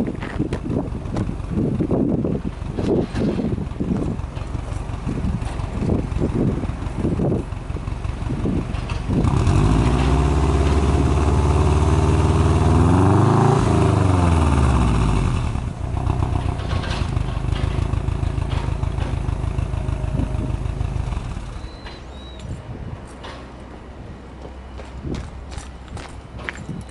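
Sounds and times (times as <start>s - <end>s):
car engine revving: 9.1s - 17.8s.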